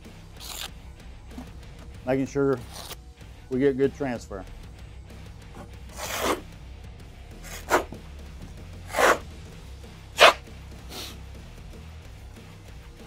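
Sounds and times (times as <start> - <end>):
trowel scraping mortar on wall: 5.9 - 6.4, 8.9 - 9.2.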